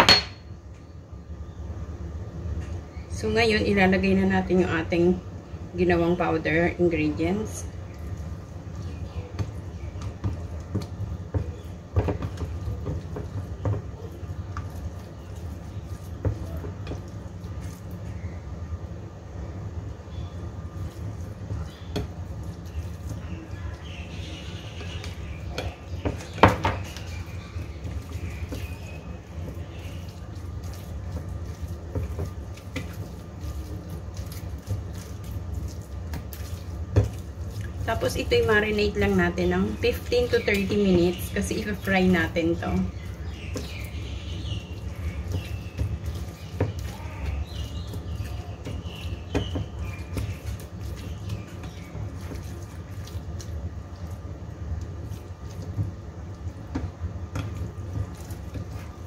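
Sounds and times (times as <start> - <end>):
steady low hum: 0.0 - 59.0
hand squishing raw meat: 20.7 - 37.9, 42.9 - 59.0
hands handling raw meat: 43.0 - 59.0.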